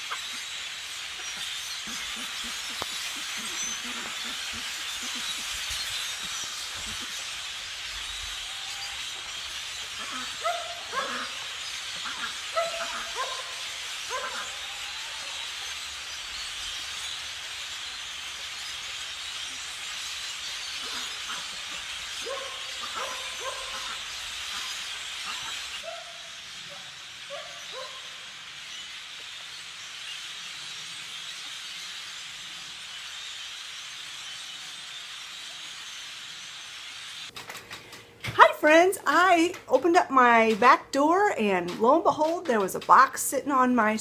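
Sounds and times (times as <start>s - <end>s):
flock of birds chattering: 0.0s - 44.0s.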